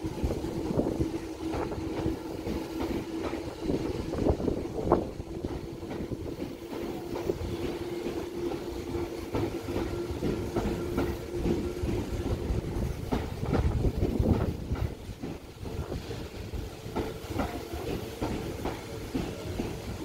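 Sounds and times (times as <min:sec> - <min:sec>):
train rumbling: 0:00.0 - 0:20.0
train wheels clicking over rail joints: 0:00.0 - 0:20.0.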